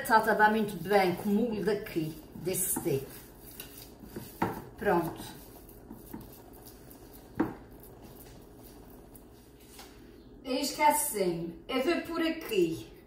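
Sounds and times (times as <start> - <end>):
hands mixing raw ground meat: 0.0 - 10.0.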